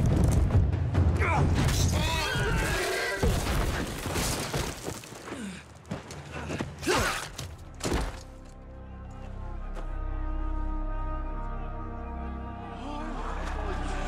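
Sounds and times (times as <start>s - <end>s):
soft music: 7.6s - 14.0s.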